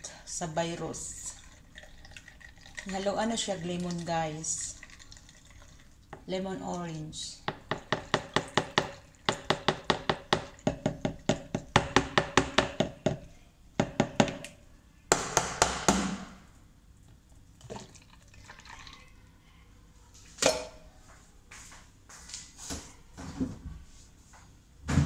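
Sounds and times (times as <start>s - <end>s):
juice pouring: 1.2s - 6.3s, 17.3s - 19.2s.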